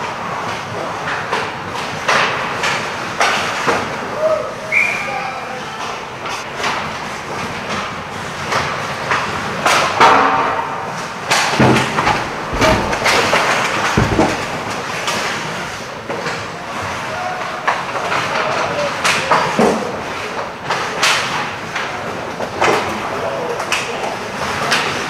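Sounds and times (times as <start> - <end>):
sticks and puck clacking: 0.3 - 4.9, 5.6 - 25.0
skates scraping ice: 5.6 - 25.0
players hitting the boards: 7.5 - 25.0.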